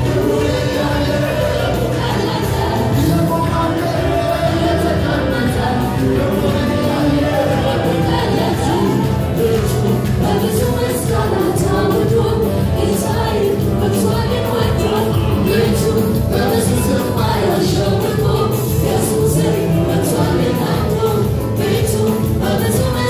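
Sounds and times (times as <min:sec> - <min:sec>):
band playing: 0:00.0 - 0:23.0
voices singing together: 0:00.0 - 0:23.0.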